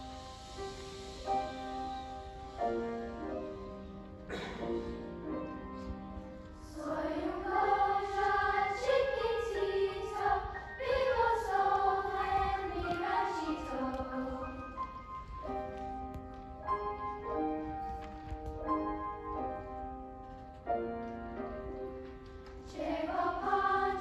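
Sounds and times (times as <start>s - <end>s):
grand piano playing: 0.0s - 24.0s
children's choir singing: 6.6s - 15.6s, 22.6s - 24.0s.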